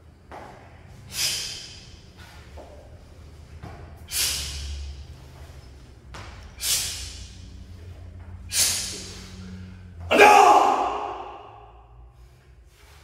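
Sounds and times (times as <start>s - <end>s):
sharp hissing exhalations: 1.1s - 2.3s, 4.1s - 5.0s, 6.6s - 7.4s, 8.5s - 9.7s.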